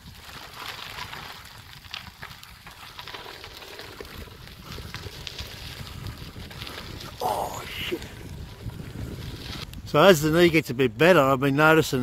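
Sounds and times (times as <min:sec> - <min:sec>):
bicycle tyres crunching on dirt: 0:00.0 - 0:12.0
wind buffeting microphone: 0:03.8 - 0:12.0.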